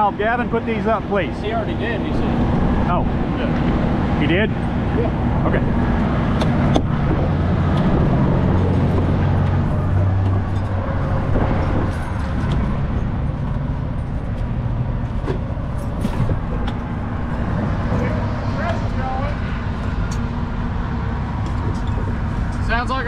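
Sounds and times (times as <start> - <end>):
traffic noise: 0.0 - 23.0
sharp clicks and knocks: 6.3 - 16.9
diesel truck engine idling: 12.4 - 23.0.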